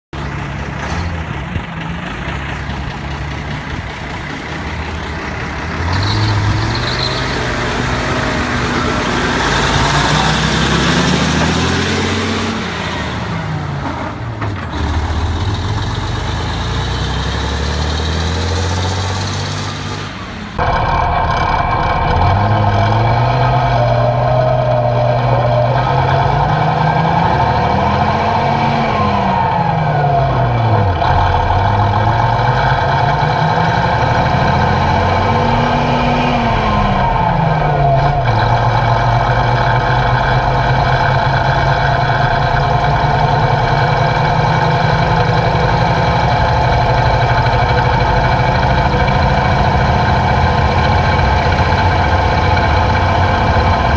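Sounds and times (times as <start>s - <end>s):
diesel truck engine revving: 0.1s - 53.9s
steady high whine: 20.2s - 27.7s.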